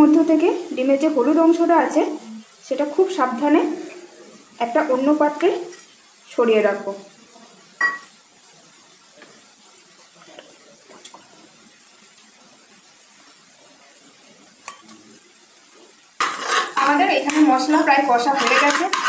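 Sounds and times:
faint steady hiss: 0.0s - 19.0s
spoon clinking on steel bowl: 7.8s - 8.1s
metal spoon clattering in pot: 18.4s - 19.0s.

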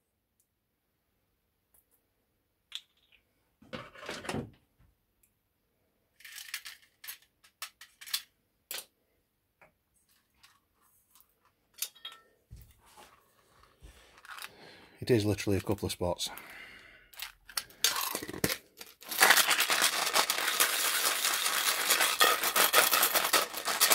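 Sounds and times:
metal pieces clinking in tin: 6.2s - 8.8s, 17.1s - 23.9s.

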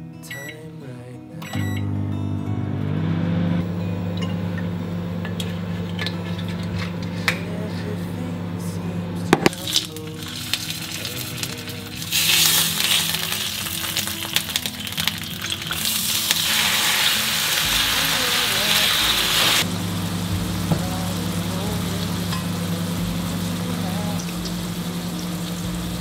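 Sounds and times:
low hum: 1.4s - 13.2s, 17.0s - 26.0s
fish sizzling in frying pan: 9.5s - 26.0s.

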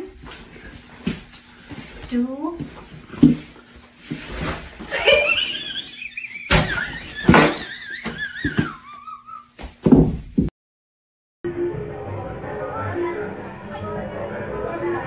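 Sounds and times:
objects thudding on hardwood floor: 2.6s - 3.5s, 6.5s - 8.8s, 9.6s - 10.5s.

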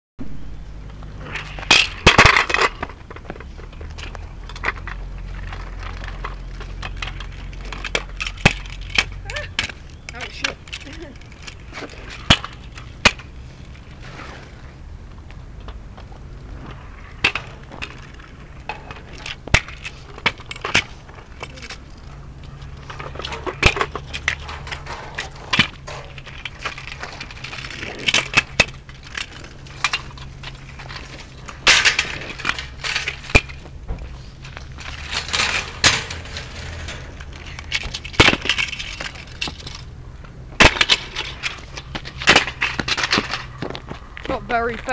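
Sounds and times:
short scraping rushes: 13.4s - 14.9s.

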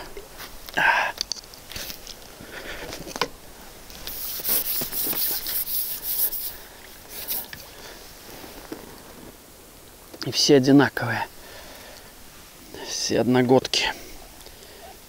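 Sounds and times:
rustling and scraping: 1.4s - 9.4s
dense scratchy rustle: 3.9s - 9.4s.

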